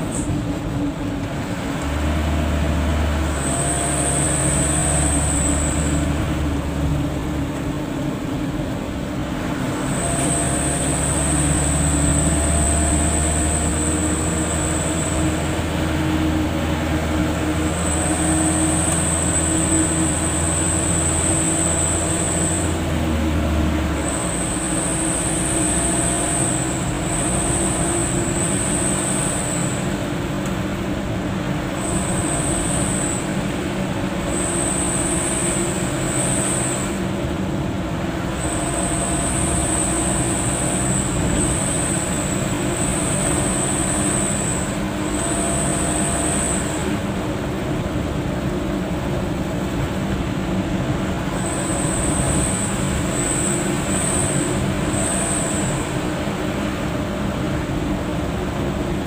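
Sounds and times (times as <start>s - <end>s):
car engine drone: 0.0s - 59.0s
road rumble: 0.0s - 59.0s
thin high-pitched whine: 51.3s - 56.3s.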